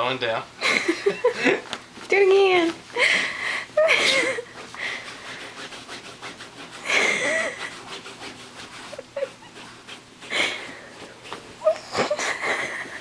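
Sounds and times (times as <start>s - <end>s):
dog sniffing and snorting: 0.6s - 13.0s
dog scratching at blanket: 1.8s - 2.9s, 3.9s - 13.0s.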